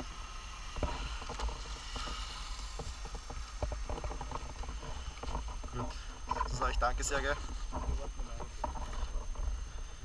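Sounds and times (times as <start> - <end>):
low uneven rumble: 0.0 - 10.0.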